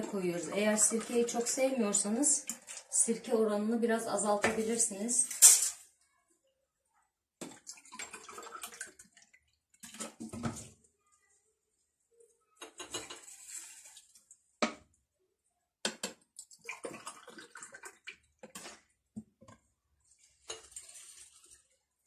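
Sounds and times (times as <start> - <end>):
vinegar pouring into jars: 7.4 - 10.4, 16.4 - 18.8.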